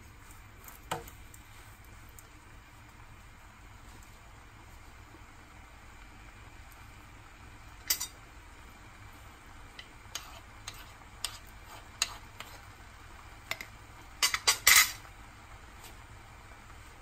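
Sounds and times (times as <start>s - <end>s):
utensils clicking on frying pan: 7.8s - 8.2s, 9.7s - 12.6s, 13.4s - 15.1s.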